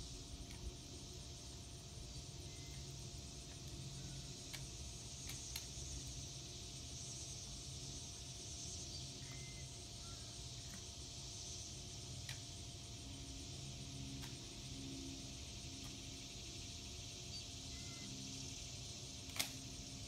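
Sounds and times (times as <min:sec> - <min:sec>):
high insect drone: 0:00.0 - 0:20.0
shotgun handling clicks: 0:19.2 - 0:19.6.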